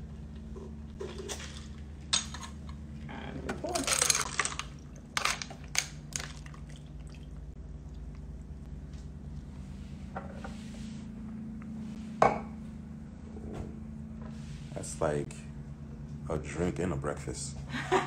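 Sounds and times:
low steady hum: 0.0 - 18.0
ice clinking: 3.7 - 7.4
cocktail and ice pouring: 3.7 - 7.5.

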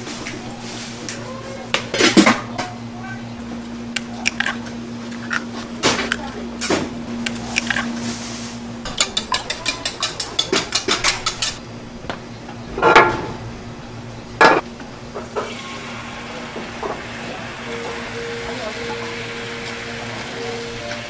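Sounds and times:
dishes clattering: 8.9 - 11.6, 12.8 - 13.3, 14.4 - 14.6
rapid knocks of metal utensils: 8.9 - 11.6.

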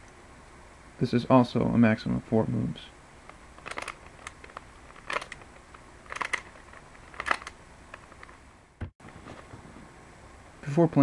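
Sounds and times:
plastic puzzle clicking: 6.1 - 7.6.

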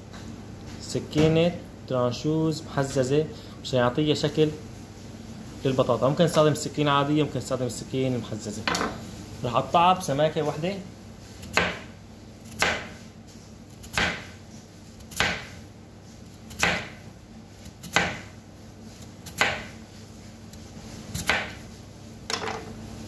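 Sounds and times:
knife slicing potato on board: 11.2 - 14.4, 15.0 - 15.6, 16.2 - 19.8, 20.5 - 21.7.

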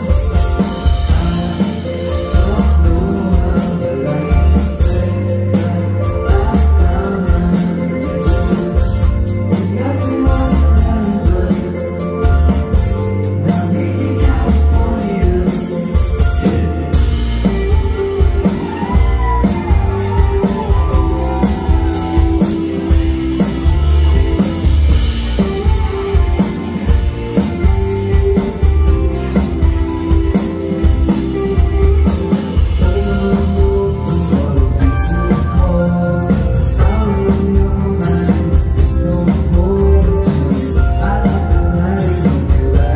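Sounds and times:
rock band playing: 0.0 - 42.9.

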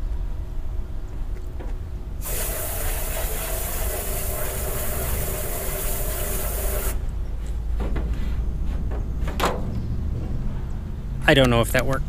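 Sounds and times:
compressed air hissing: 2.2 - 7.0.

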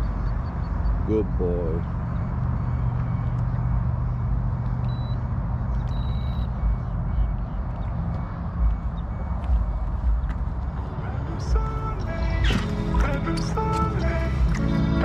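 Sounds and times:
vehicle engine humming: 0.0 - 15.0
high beeps: 1.9 - 11.7.

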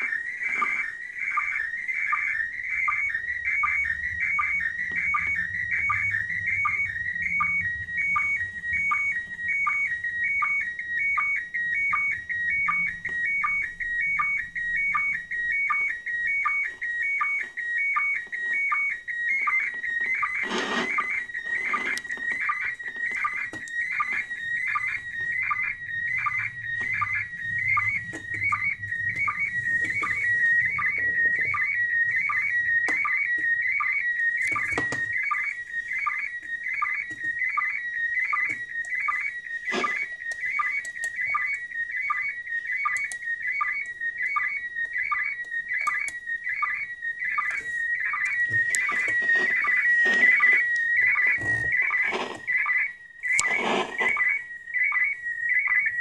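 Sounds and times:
high whistle-like signal tone: 18.7 - 34.8, 47.4 - 55.1
sharp clicks: 42.9 - 43.2.

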